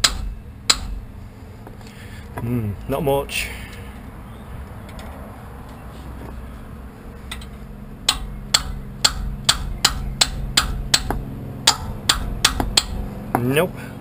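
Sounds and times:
hammer striking spanner: 0:00.0 - 0:01.0, 0:08.1 - 0:13.5.

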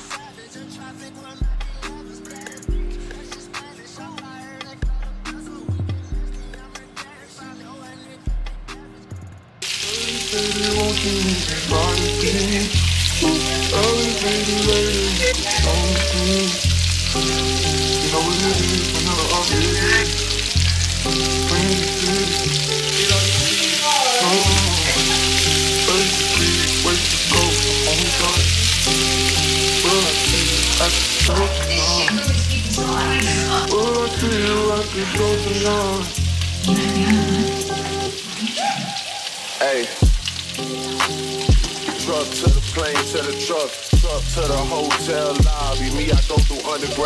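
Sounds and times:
slow r and b song: 0:00.0 - 0:47.0
crackling hiss: 0:09.6 - 0:47.0.

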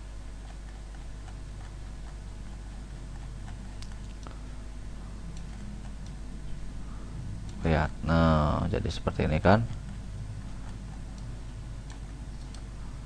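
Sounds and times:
low electrical hum: 0:00.0 - 0:13.0
computer mouse clicks: 0:00.4 - 0:04.4, 0:05.3 - 0:06.2, 0:10.6 - 0:12.7.

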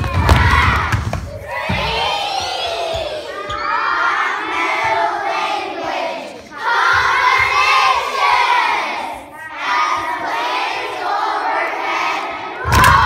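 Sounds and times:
children calling out in unison: 0:00.6 - 0:04.5.

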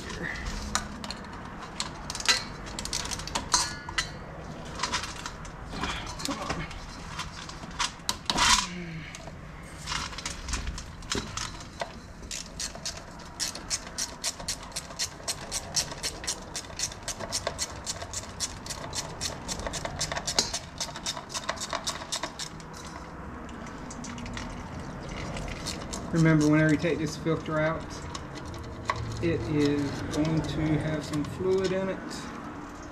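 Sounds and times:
ratchet wrench clicking: 0:12.2 - 0:23.0.

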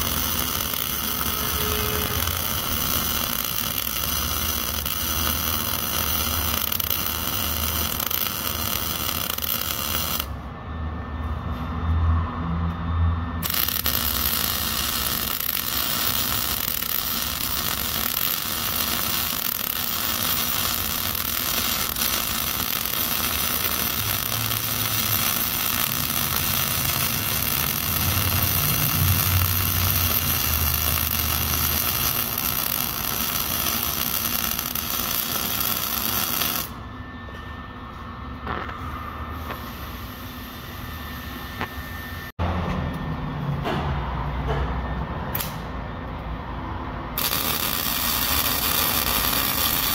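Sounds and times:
welder arc crackling: 0:00.0 - 0:10.4, 0:13.4 - 0:36.8, 0:47.2 - 0:49.9.

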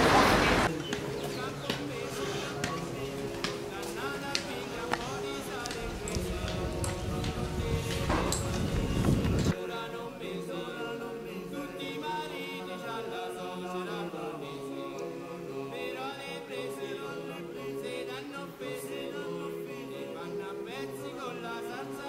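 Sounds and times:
street noise: 0:00.0 - 0:09.6
choir singing a cappella: 0:00.0 - 0:22.0.

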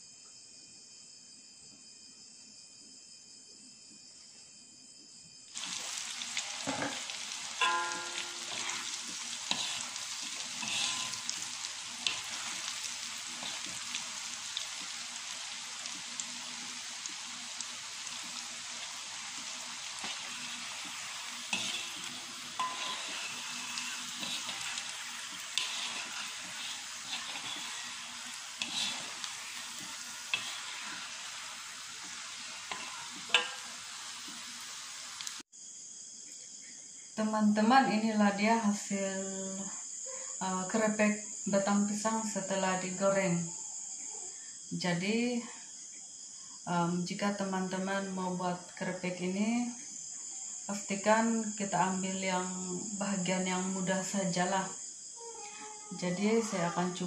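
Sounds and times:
deep-frying sizzle in oil: 0:05.5 - 0:35.5
wire strainer scraping a wok: 0:06.4 - 0:14.0, 0:19.4 - 0:34.4.

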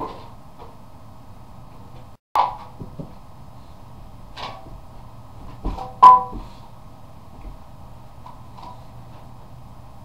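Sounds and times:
sharp knocks with metallic ring: 0:05.7 - 0:06.5.

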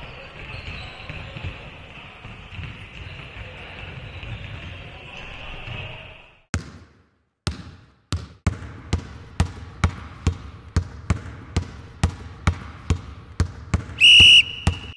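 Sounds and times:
basketball dribbling: 0:06.6 - 0:14.9.

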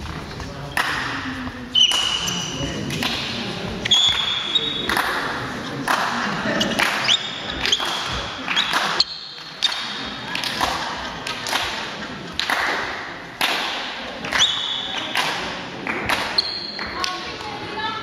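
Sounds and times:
sneakers squeaking on wooden floor: 0:03.8 - 0:05.0, 0:06.6 - 0:09.8, 0:16.3 - 0:17.0.

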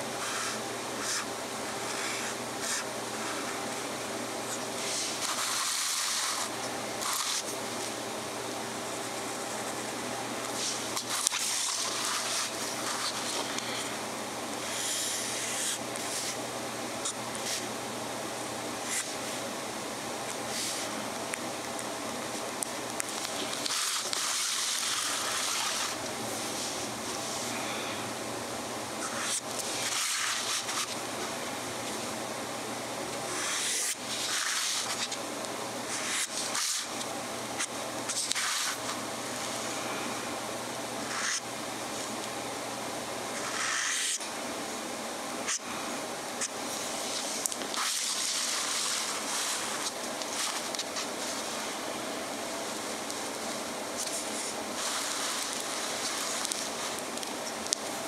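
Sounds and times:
faint steady hum: 0:00.0 - 0:58.0
pen nib swishing on paper: 0:00.2 - 0:03.4, 0:04.8 - 0:07.5, 0:10.5 - 0:13.6, 0:43.4 - 0:44.2
pen nib scratching paper: 0:00.2 - 0:03.6, 0:04.5 - 0:07.5, 0:10.5 - 0:13.6, 0:14.6 - 0:16.4, 0:18.8 - 0:19.2, 0:23.1 - 0:26.0, 0:29.0 - 0:31.0, 0:33.3 - 0:35.2, 0:35.9 - 0:37.0, 0:37.6 - 0:39.0, 0:41.0 - 0:41.4, 0:43.4 - 0:44.2, 0:46.4 - 0:51.4, 0:54.0 - 0:57.0.

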